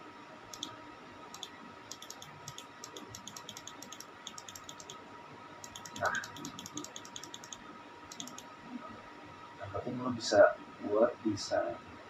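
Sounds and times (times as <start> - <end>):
computer mouse clicking: 0.5 - 5.0, 5.6 - 8.5.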